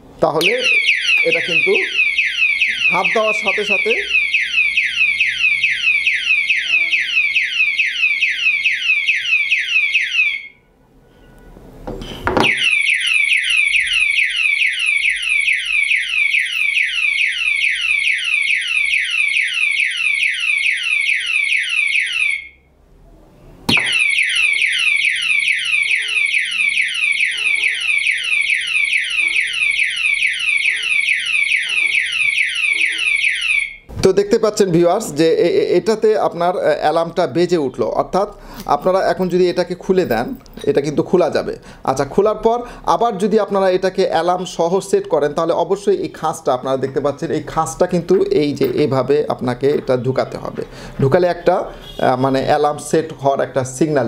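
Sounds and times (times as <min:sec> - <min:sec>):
knock: 0:11.9 - 0:12.6
alarm siren falling whoops: 0:23.7 - 0:33.8.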